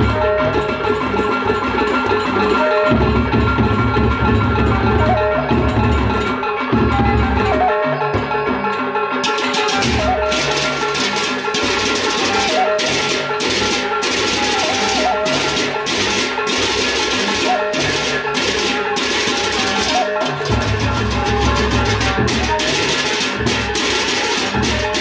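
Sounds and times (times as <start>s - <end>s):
barrel drums beaten: 9.2s - 25.0s
hand cymbals clashing: 9.2s - 25.0s.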